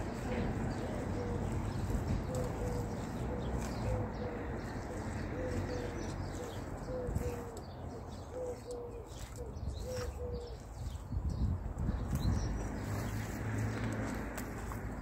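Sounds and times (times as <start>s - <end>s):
pigeon cooing: 0.0s - 10.9s.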